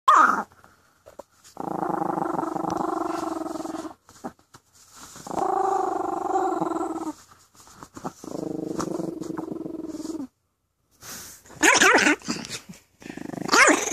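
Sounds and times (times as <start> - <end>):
small dog growling: 1.6 - 4.4, 5.2 - 7.2, 8.0 - 10.3, 11.6 - 13.9.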